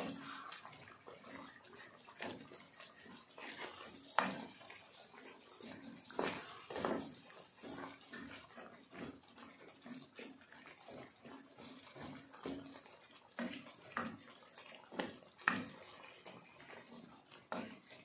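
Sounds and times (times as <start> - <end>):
faint water splashes: 0.0 - 18.0.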